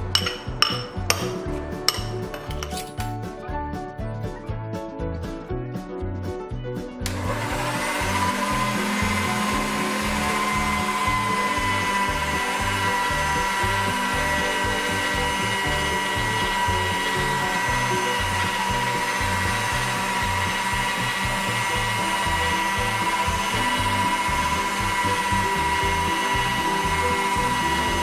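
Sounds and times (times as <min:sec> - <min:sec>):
background music with low beat: 0:00.0 - 0:28.0
pasta machine motor whine: 0:07.0 - 0:28.0.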